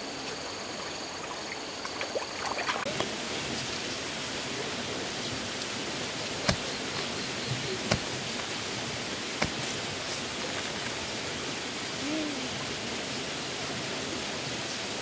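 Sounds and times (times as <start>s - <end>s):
stream water flowing: 0.0s - 15.0s
water trickling: 0.1s - 15.0s
hoe striking ground: 6.3s - 8.6s, 9.4s - 10.3s.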